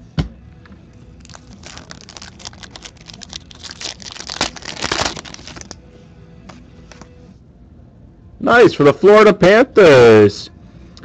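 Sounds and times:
wrapper tearing and crinkling: 1.2 - 5.8.

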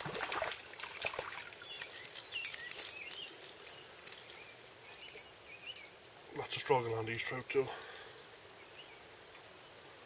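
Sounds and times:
faint outdoor hiss: 0.0 - 10.0
small bird chirping: 1.6 - 6.0.

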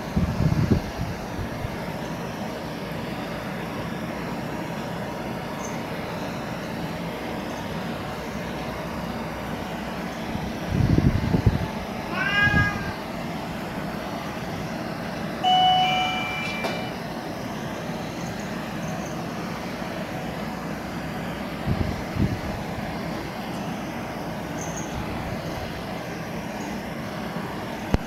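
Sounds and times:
kitten mewing: 12.1 - 13.0
flat held tone: 15.4 - 17.0.

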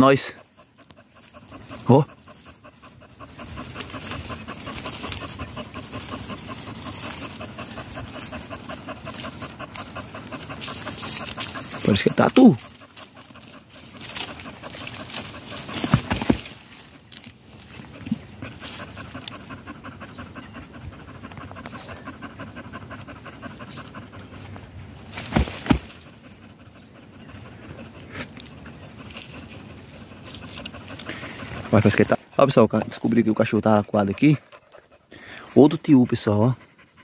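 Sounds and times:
dog panting: 0.0 - 37.0
brush snapping: 25.1 - 26.0.

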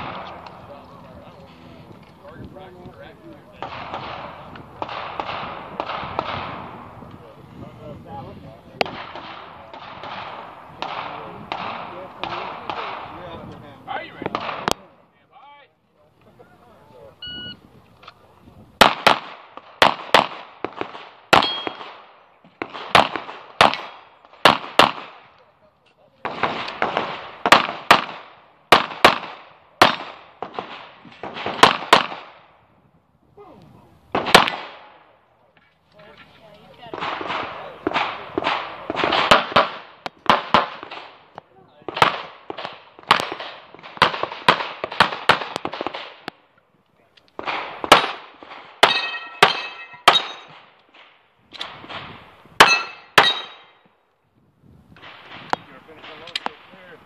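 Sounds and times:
pistol shots with echo: 3.6 - 7.0, 8.8 - 13.3, 14.2 - 14.9, 18.8 - 25.3, 26.2 - 32.5, 34.1 - 35.1, 36.9 - 46.3, 47.4 - 50.8, 51.5 - 53.8
handgun shots: 21.4 - 22.0, 48.8 - 50.7, 51.5 - 53.7
steel targets clanging: 48.8 - 50.6, 52.6 - 53.8.

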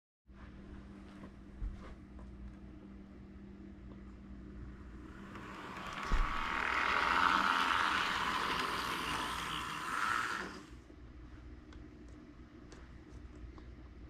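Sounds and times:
model train running on track: 5.0 - 10.7.

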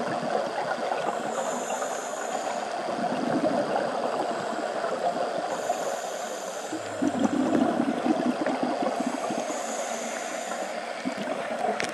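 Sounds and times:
bubbling gurgle: 0.0 - 1.4, 2.8 - 5.6, 6.7 - 11.9
underwater hiss with crackle: 0.0 - 11.9.

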